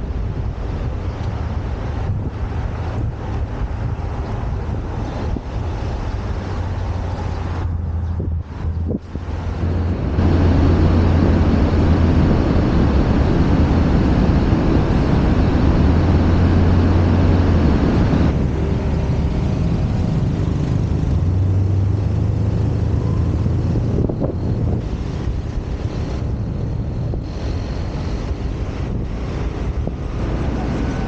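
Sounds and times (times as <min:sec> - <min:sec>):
tyres on road: 0:00.0 - 0:31.0
wind rushing over microphone: 0:00.0 - 0:31.0
scooter engine humming: 0:08.7 - 0:31.0.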